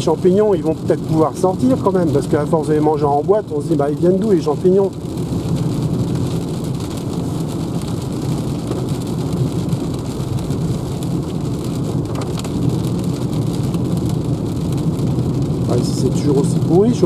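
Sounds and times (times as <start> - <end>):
rain on car roof and windscreen: 0.0 - 17.0
tyres rumbling on wet road: 0.0 - 17.0
windscreen wipers sweeping: 0.0 - 17.0.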